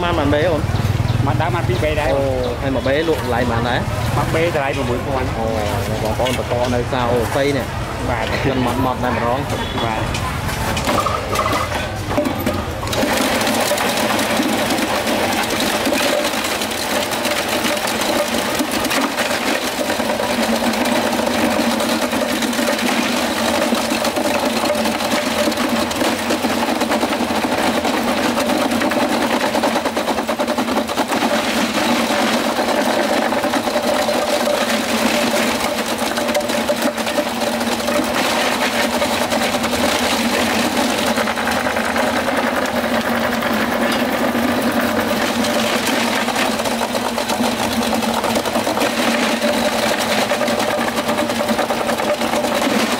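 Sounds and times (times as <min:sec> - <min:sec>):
small engine running: 0:10.8 - 0:52.9.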